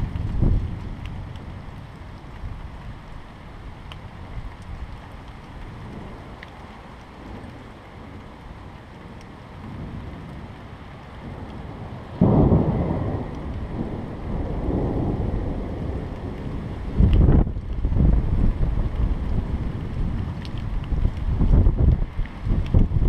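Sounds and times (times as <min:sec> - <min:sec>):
thunder clap rumbling: 0:00.0 - 0:02.7, 0:11.2 - 0:23.0
rain hissing: 0:00.0 - 0:23.0.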